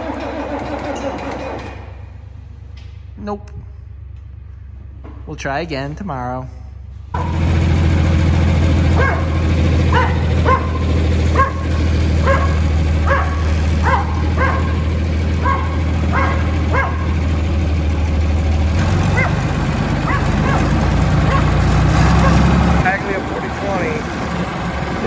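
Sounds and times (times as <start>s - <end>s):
tractor engine running: 0.0s - 3.1s, 6.9s - 25.0s
small dog barking: 9.0s - 14.8s, 15.4s - 17.2s, 19.1s - 19.4s, 20.0s - 21.5s.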